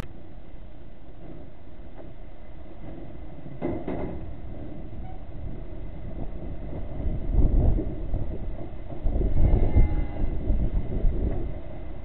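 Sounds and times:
wind rumble on microphone: 0:02.8 - 0:12.0.

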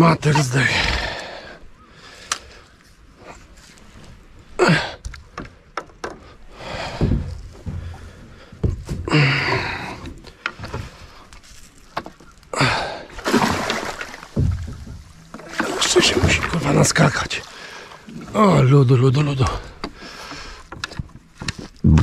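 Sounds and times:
knocks and thuds in boat: 0:05.0 - 0:11.1, 0:13.2 - 0:17.2
fish splashing in water: 0:13.2 - 0:16.5.

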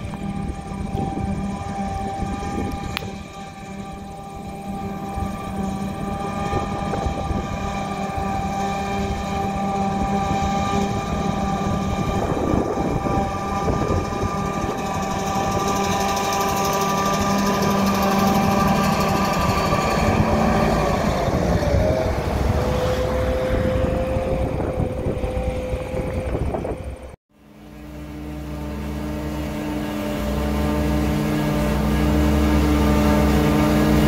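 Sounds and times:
forage harvester engine droning: 0:00.0 - 0:34.0
tractor engine: 0:00.0 - 0:34.0.

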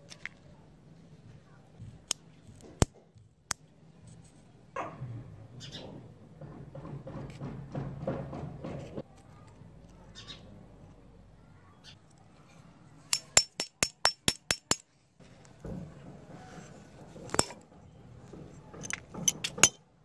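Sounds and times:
hammer tapping metal: 0:13.1 - 0:14.8, 0:17.3 - 0:17.6, 0:18.8 - 0:19.8.

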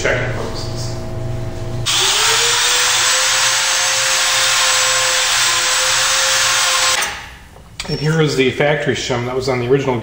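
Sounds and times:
die grinder grinding metal: 0:01.9 - 0:07.2.

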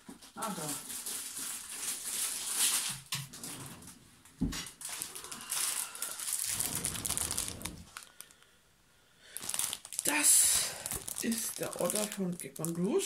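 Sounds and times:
packaging crinkling: 0:00.4 - 0:03.7, 0:04.6 - 0:08.5, 0:09.3 - 0:13.0.

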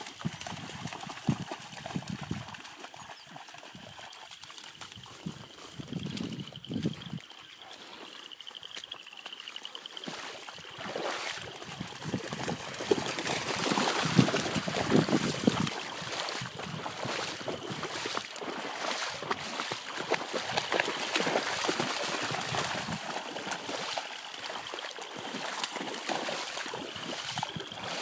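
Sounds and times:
puppies splashing in water: 0:00.0 - 0:28.0.

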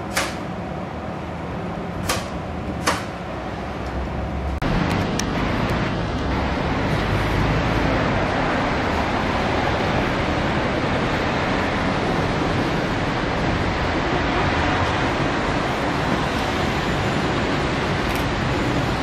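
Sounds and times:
urban traffic noise: 0:00.0 - 0:19.0
wind rumbling on microphone: 0:03.9 - 0:19.0.

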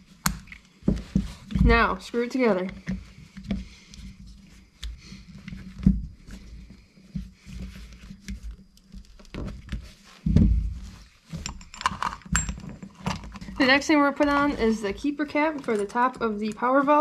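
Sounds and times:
heavy thump: 0:10.2 - 0:10.8
allen key clicking and scraping: 0:11.3 - 0:13.7.

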